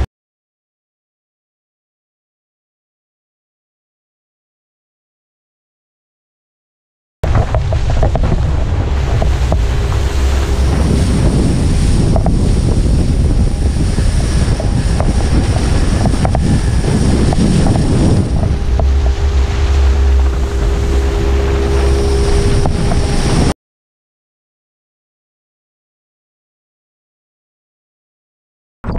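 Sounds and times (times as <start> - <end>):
water rushing under wakeboard: 7.2 - 23.6
wind buffeting microphone: 7.2 - 23.6
faint steady hum: 7.6 - 23.5.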